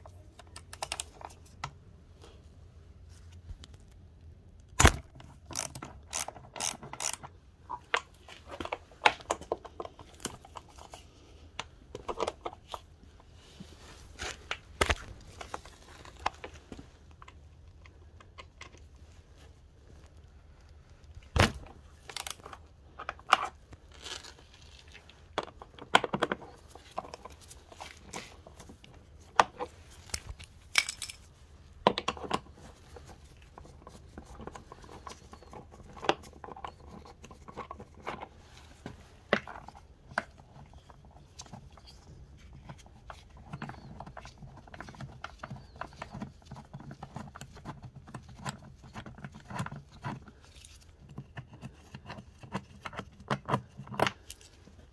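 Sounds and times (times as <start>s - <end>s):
metallic clicks and clinks: 30.0s - 31.3s.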